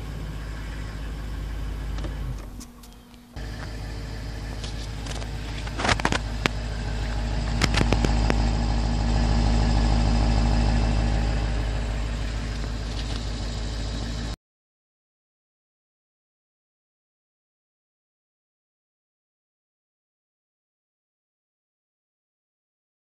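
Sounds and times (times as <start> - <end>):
car engine idling: 0.0 - 14.4.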